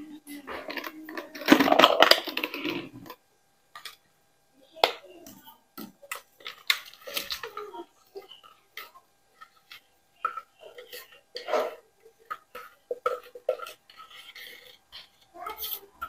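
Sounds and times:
containers and utensils rattling: 0.4s - 4.0s, 5.8s - 16.0s.

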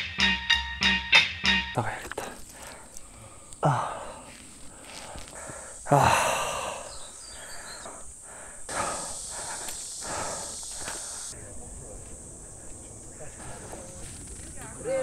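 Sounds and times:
person breathing heavily and sighing: 2.0s - 11.4s.

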